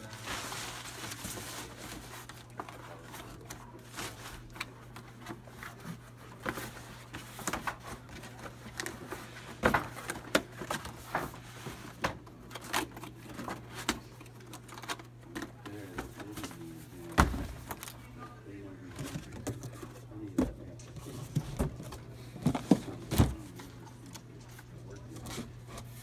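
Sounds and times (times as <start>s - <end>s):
cardboard scraping and rustling: 0.0s - 18.1s, 18.9s - 26.0s
heavy thump: 17.2s - 17.7s.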